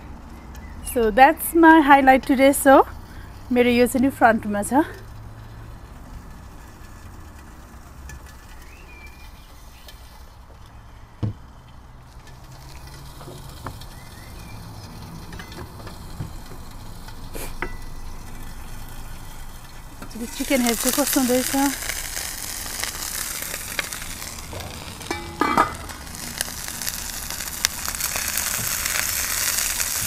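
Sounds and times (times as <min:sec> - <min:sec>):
chicken sizzling in a pan: 0:12.1 - 0:30.0.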